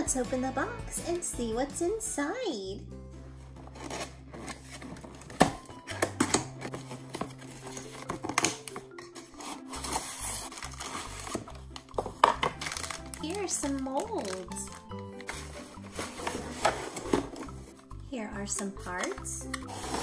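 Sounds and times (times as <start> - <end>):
background music: 0.0 - 20.0
cardboard box being opened: 3.6 - 13.2.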